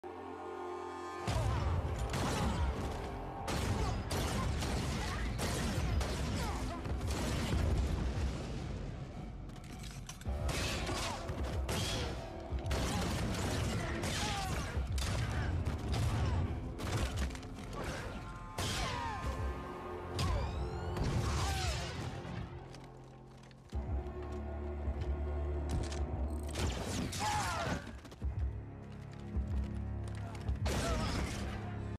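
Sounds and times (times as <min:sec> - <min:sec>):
film score music: 0:00.0 - 0:31.9.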